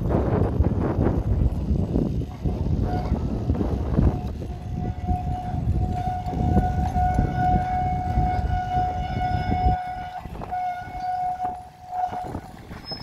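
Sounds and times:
low rumble: 0:00.0 - 0:13.0
tram wheels squealing on rails: 0:02.8 - 0:13.0.

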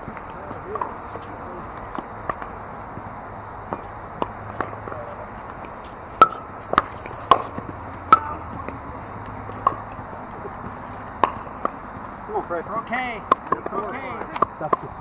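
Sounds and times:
pickleball popping off paddles: 0:03.7 - 0:11.8, 0:13.2 - 0:14.9.

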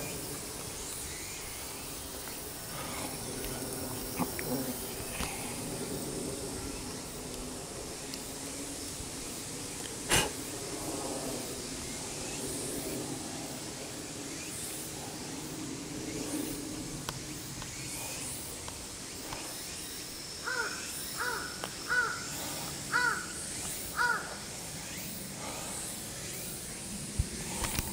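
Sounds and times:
steady background hiss: 0:00.0 - 0:27.9
crow cawing: 0:20.4 - 0:22.3, 0:22.9 - 0:23.3, 0:24.0 - 0:24.4.

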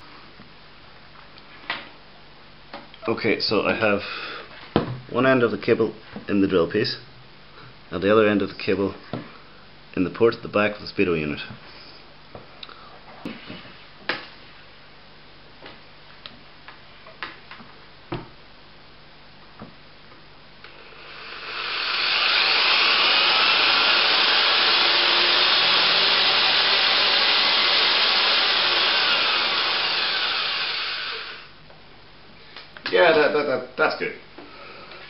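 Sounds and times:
power drill running: 0:20.7 - 0:31.6.

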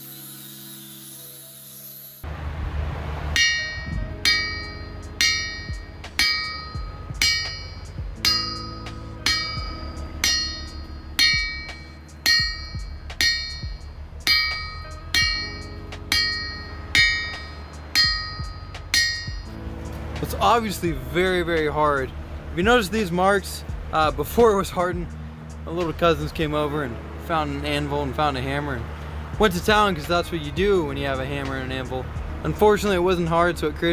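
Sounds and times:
hammer ringing on anvil: 0:03.4 - 0:19.5.

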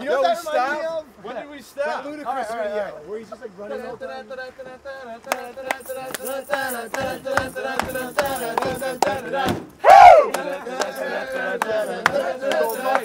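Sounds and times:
voices singing a tune: 0:00.0 - 0:13.0
sharp rhythmic clicks: 0:05.2 - 0:09.4, 0:10.3 - 0:13.0.

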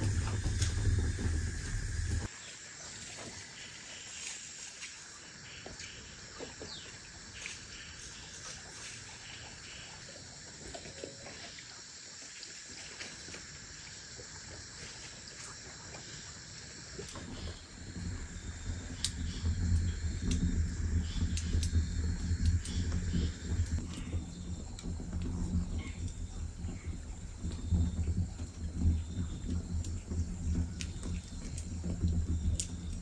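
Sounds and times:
wood fire crackling: 0:00.0 - 0:02.3, 0:17.0 - 0:33.0
insects chirring: 0:00.0 - 0:33.0
faint clicks: 0:17.0 - 0:26.8.

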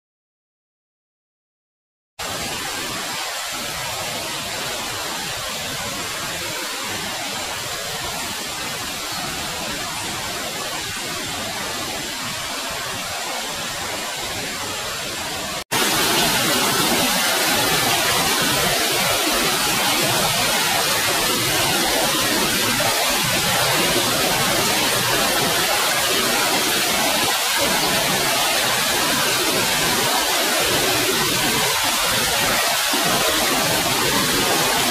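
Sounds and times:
flowing water rushing: 0:02.2 - 0:34.9.

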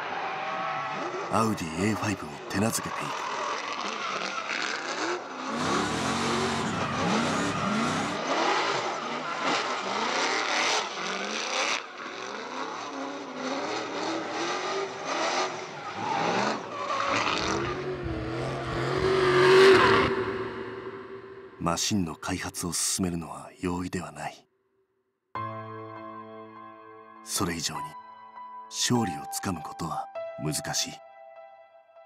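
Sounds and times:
car engine revving: 0:03.1 - 0:21.6.

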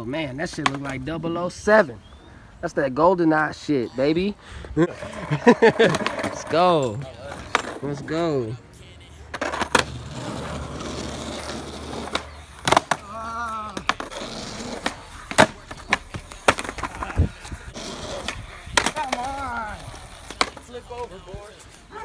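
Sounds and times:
skateboard clacking on pavement: 0:00.4 - 0:01.0, 0:05.8 - 0:08.0, 0:09.3 - 0:21.3
skateboard wheels rolling on asphalt: 0:04.9 - 0:08.6, 0:09.3 - 0:22.0
short vocal cry: 0:13.0 - 0:13.8.

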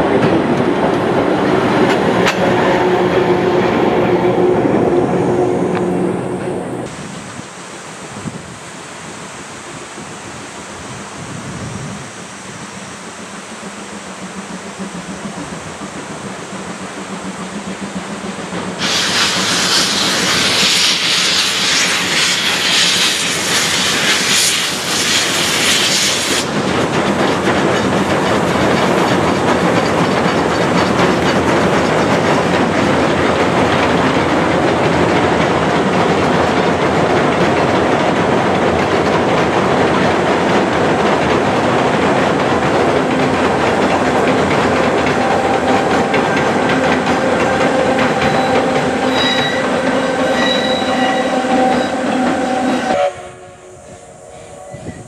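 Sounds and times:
loud steam hiss: 0:00.0 - 0:55.0
train wheels rumbling and clattering: 0:00.0 - 0:55.0.

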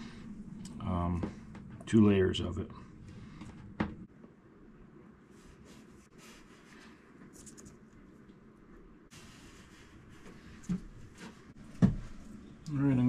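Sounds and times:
tape rustling and scratching: 0:06.5 - 0:08.4.

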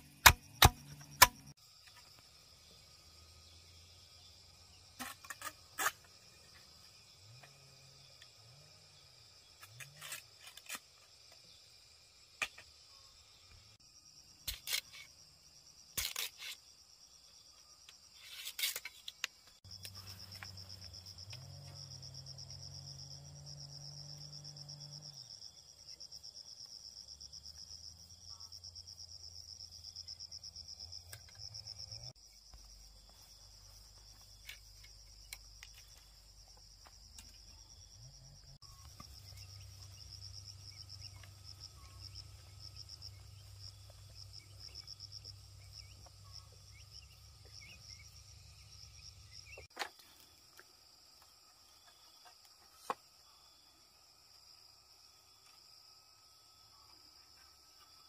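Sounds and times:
machete splitting bamboo: 0:00.0 - 0:01.5
insects chirring: 0:00.0 - 0:58.0.

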